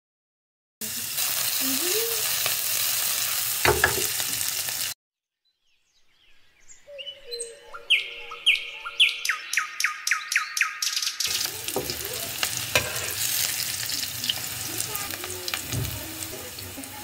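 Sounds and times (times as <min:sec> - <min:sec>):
onions sizzling in oil: 0:00.8 - 0:05.0, 0:11.2 - 0:17.0
birds calling: 0:05.5 - 0:17.0.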